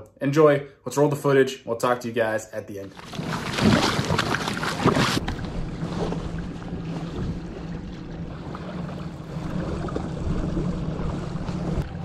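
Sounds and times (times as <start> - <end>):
water noise: 2.8 - 12.0
steady low hum: 5.2 - 12.0.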